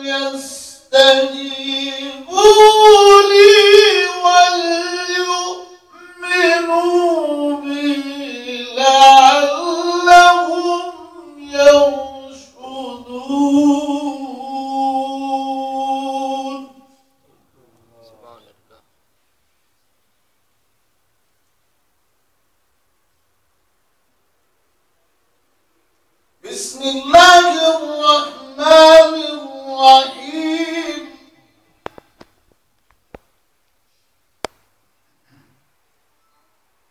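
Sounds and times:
man reciting melodically: 0:00.0 - 0:18.9, 0:26.4 - 0:31.5.

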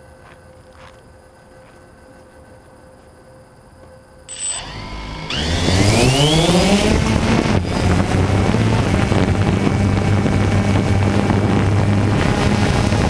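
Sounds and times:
drone motors and propellers: 0:04.3 - 0:13.0
propeller wash buffeting microphone: 0:04.6 - 0:13.0.

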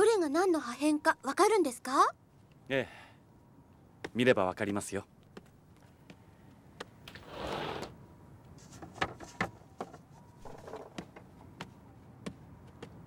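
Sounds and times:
glass cabinet door sliding: 0:07.2 - 0:07.9.

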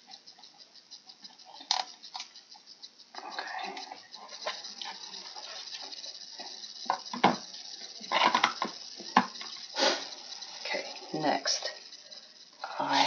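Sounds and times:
hard plastic parts clacking: 0:06.8 - 0:09.7.

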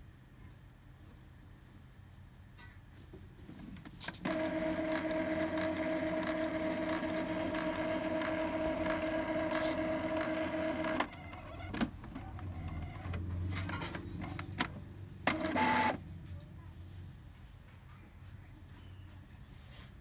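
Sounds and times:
printer motor whine: 0:04.2 - 0:13.3, 0:15.2 - 0:16.0.

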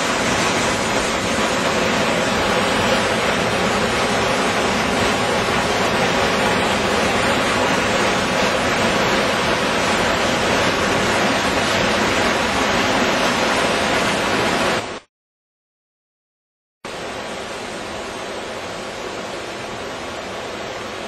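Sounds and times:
water rushing through concrete channel: 0:00.0 - 0:15.0.

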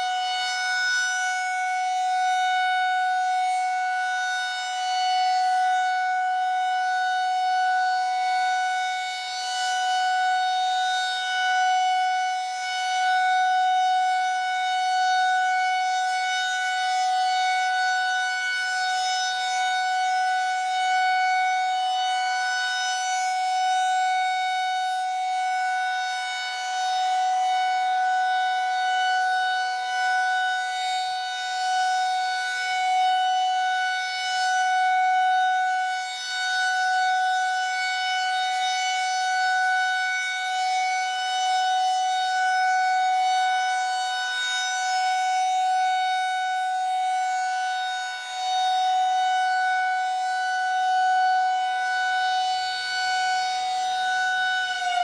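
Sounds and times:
rotating tornado siren: 0:00.0 - 0:55.0.

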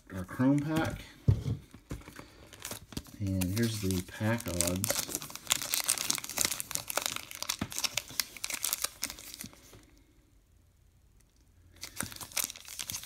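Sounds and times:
foil wrapper crinkling: 0:01.9 - 0:09.8, 0:11.8 - 0:13.0.

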